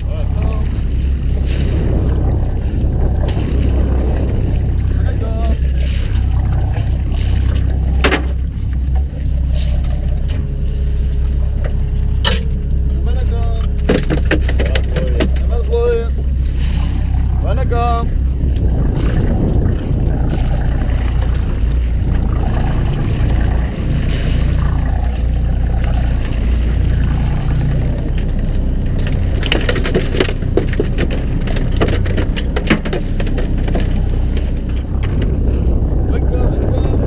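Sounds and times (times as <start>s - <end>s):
boat engine humming: 0.0s - 37.0s
sharp clicks and knocks: 13.6s - 15.5s, 28.9s - 35.3s.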